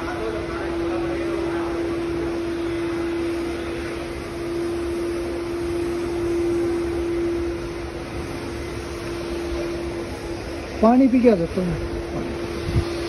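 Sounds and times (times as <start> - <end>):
machine hum: 0.0 - 13.0.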